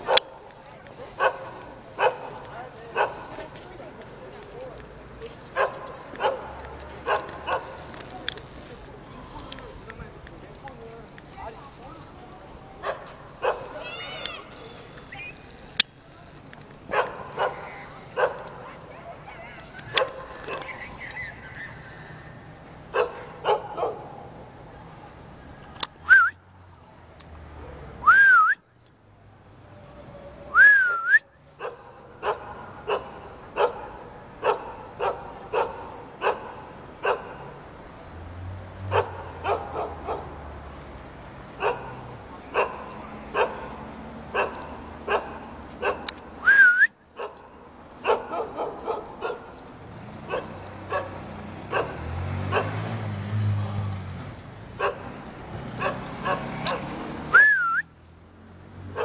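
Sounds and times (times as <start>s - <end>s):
dog barking: 0.0s - 3.5s, 5.5s - 7.9s, 12.8s - 13.8s, 16.9s - 21.8s, 22.9s - 24.4s, 31.6s - 37.6s, 38.9s - 40.4s, 41.6s - 46.2s, 47.2s - 49.6s, 50.2s - 53.0s, 54.8s - 57.0s
short rising whistles: 26.0s - 26.4s, 28.0s - 28.6s, 30.5s - 31.3s, 46.4s - 47.0s, 57.3s - 58.0s.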